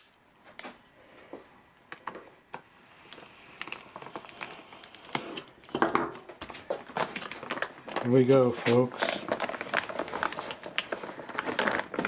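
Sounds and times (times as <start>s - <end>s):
plastic bag crinkling: 3.0s - 12.0s.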